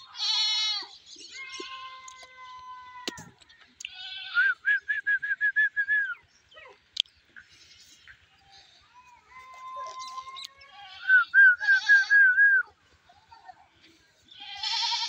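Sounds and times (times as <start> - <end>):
long thin animal cry: 14.4 - 15.0.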